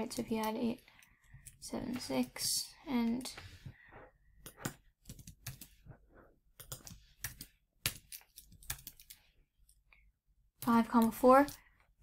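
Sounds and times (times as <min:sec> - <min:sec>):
computer keyboard typing: 0:04.4 - 0:05.8, 0:06.6 - 0:09.2.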